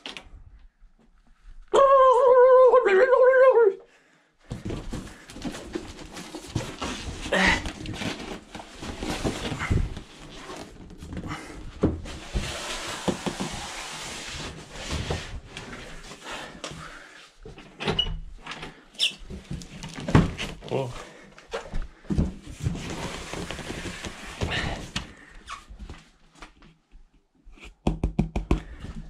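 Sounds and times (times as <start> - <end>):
cardboard box scraping and bumping: 22.5 - 24.8.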